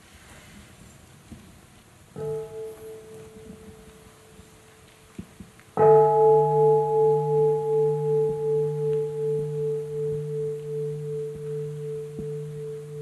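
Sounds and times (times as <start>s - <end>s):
meditation bowl bell ringing: 2.2s - 4.6s, 5.8s - 13.0s.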